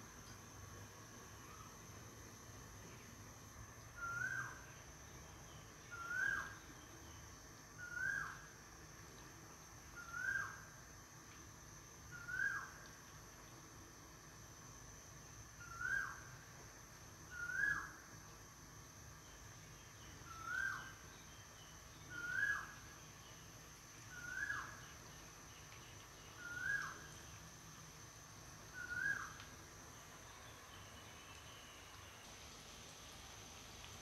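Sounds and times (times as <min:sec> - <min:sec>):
faint steady hiss: 0:00.0 - 0:34.0
bird calling: 0:28.8 - 0:29.4.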